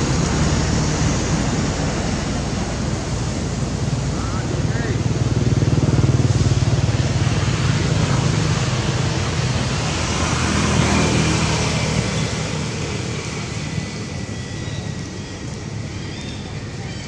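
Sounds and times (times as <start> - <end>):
vehicle engine humming: 0.0 - 17.0.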